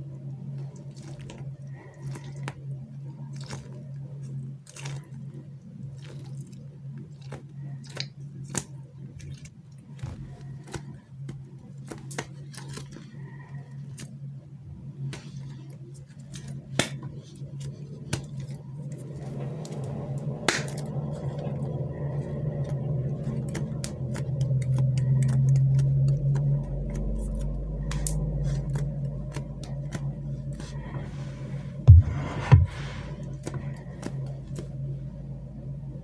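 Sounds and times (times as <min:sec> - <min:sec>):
steady low hum: 0:00.0 - 0:36.0
squishy toys crackling and clicking: 0:05.9 - 0:14.2, 0:22.0 - 0:30.9.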